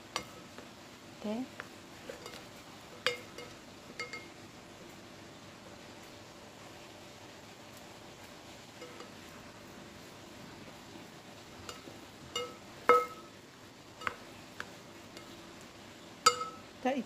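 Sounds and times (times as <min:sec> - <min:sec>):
rice paddle clinking on metal pot: 0:00.0 - 0:00.6, 0:02.0 - 0:04.4, 0:08.7 - 0:09.5, 0:11.6 - 0:13.4, 0:14.0 - 0:15.5, 0:16.2 - 0:16.7.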